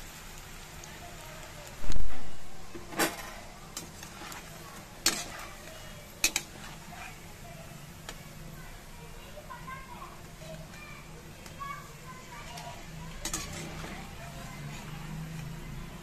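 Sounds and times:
food frying in oil: 0.0 - 16.0
metal spoon scraping a pan: 2.1 - 7.3, 12.3 - 16.0.

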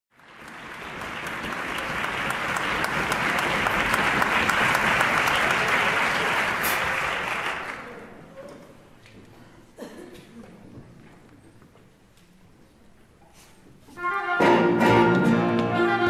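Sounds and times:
audience applauding: 0.1 - 8.2.

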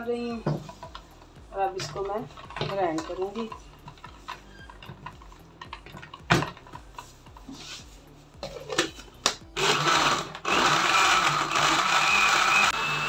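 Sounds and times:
blender grinding ice: 9.6 - 13.0.

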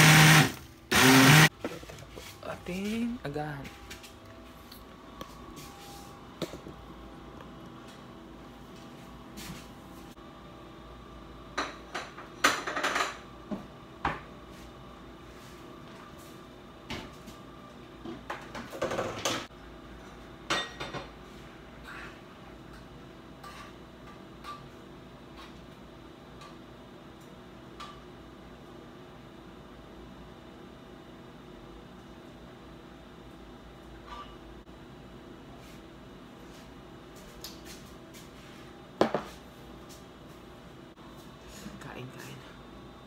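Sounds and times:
steady hum: 0.0 - 11.9
kitchenware clattering: 11.6 - 13.2, 20.5 - 21.1.

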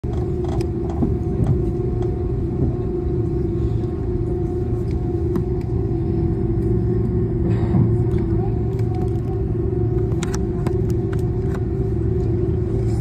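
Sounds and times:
cabin hum: 0.0 - 13.0
jet engine rumble: 0.0 - 13.0.

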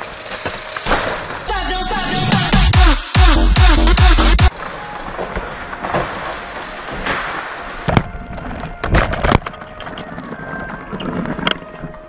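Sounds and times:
bike rattling: 0.0 - 1.5, 4.5 - 12.0
bike tyre noise on dirt: 0.0 - 1.6, 4.5 - 12.0.

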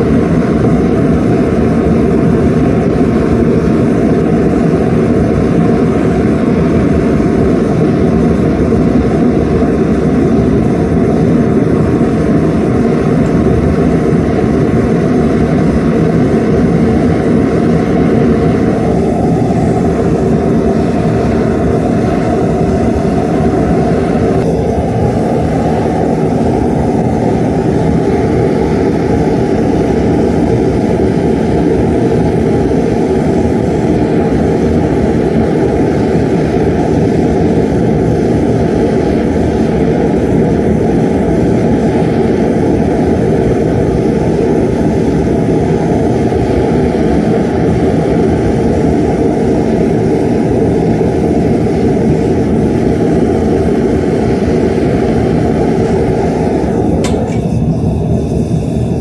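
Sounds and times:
gas furnace burner roaring: 0.0 - 59.0
metal lid clank: 57.0 - 57.6.

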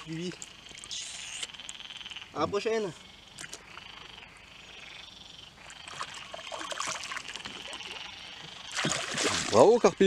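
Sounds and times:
water splashing and trickling: 0.0 - 1.6, 5.6 - 10.0
frogs trilling: 0.0 - 10.0.

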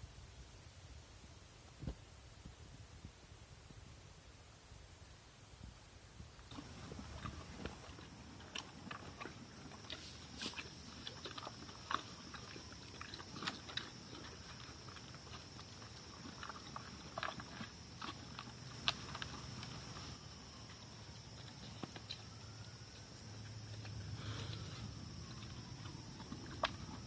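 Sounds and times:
animals crunching feed: 6.4 - 27.0.

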